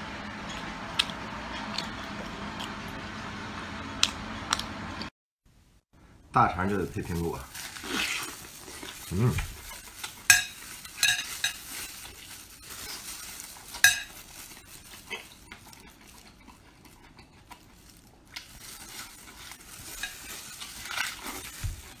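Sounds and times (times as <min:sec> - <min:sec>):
chewing: 0:07.6 - 0:22.0.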